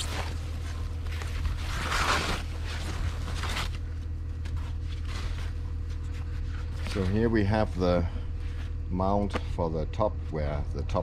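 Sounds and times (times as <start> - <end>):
foam sheets rustling: 0.0 - 7.8
steady low hum: 0.0 - 11.0.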